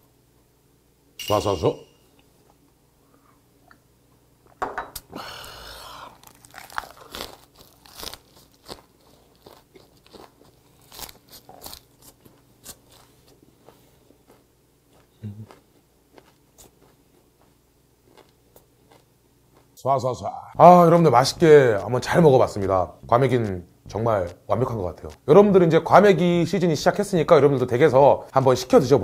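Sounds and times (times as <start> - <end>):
low hum of satisfaction: 5.0 - 7.1, 15.1 - 15.6
person crunching and chewing: 5.2 - 19.8.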